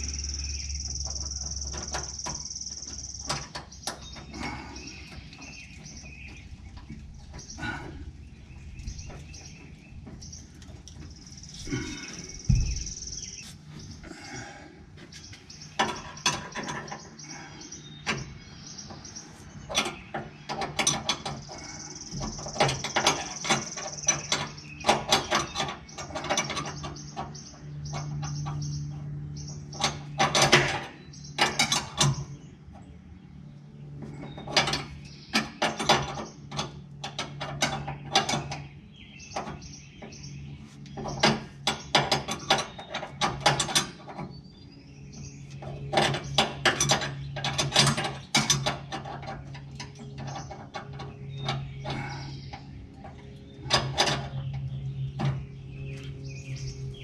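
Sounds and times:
steady low hum: 0.0s - 57.0s
wrenches clicking on metal: 45.5s - 54.7s.

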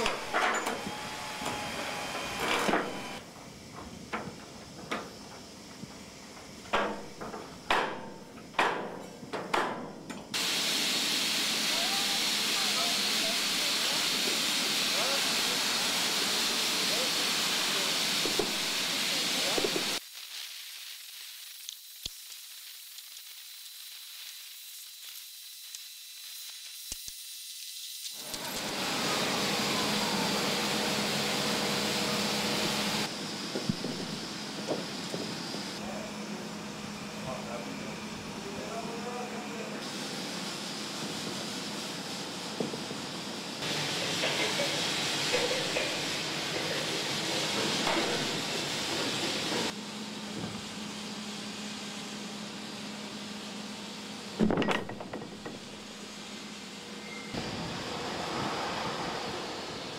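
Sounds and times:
machine engine running: 0.0s - 3.3s.

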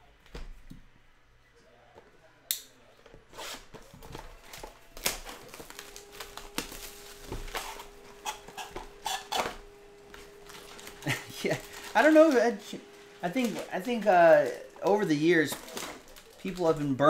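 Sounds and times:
faint steady hum: 0.0s - 17.0s
plastic wrap crinkling and tearing: 3.8s - 17.0s.

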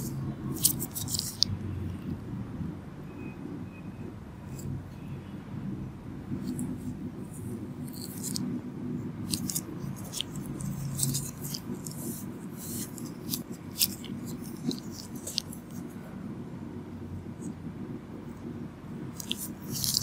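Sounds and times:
tools clicking and scratching: 0.0s - 2.1s, 7.4s - 8.5s, 9.2s - 15.8s, 19.2s - 20.0s
low room murmur: 0.0s - 20.0s.

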